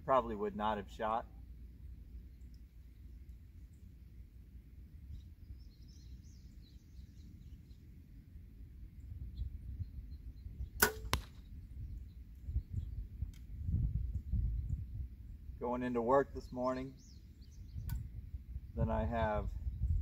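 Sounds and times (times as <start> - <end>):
bow string release cracks: 10.8 - 11.5.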